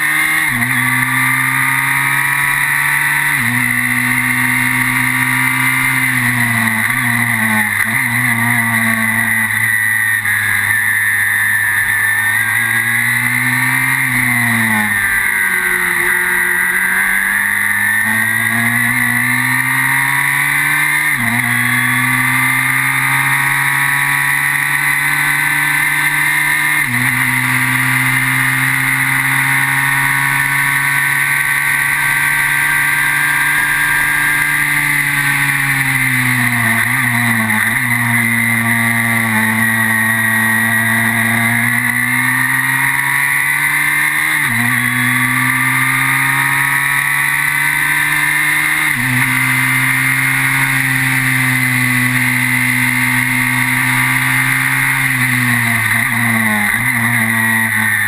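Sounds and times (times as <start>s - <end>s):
race car engine running hard: 0.0s - 58.0s.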